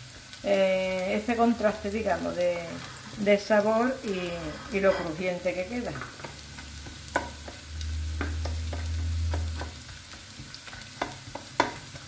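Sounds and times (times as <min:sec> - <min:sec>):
vegetables sizzling in frying pan: 0:00.0 - 0:12.0
spatula clicking against pan: 0:10.4 - 0:12.0.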